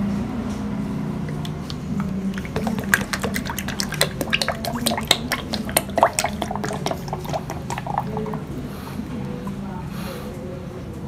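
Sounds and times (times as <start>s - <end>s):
oil pouring into a plastic jug: 1.3s - 8.5s.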